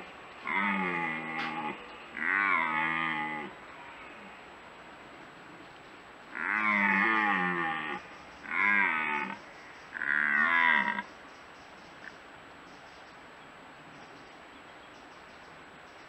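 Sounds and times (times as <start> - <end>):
deer stag roaring: 0.4 - 4.4, 6.3 - 9.4, 10.0 - 11.0.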